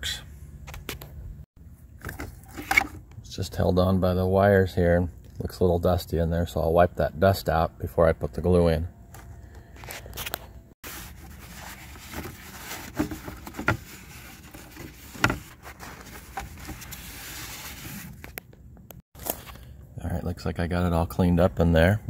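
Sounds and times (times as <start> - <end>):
paper towel rubbing plastic: 10.8 - 18.3.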